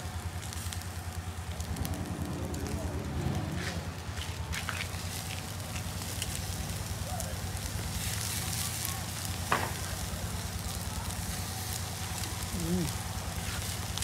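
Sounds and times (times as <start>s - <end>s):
meat sizzling on a grill: 0.0s - 14.0s
low hum: 0.2s - 7.0s.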